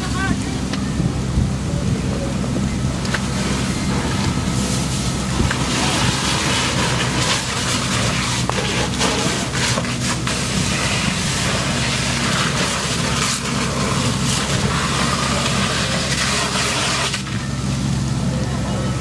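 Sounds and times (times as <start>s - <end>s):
engine running: 0.0s - 19.0s
hiss of water spray and steam: 3.1s - 17.8s.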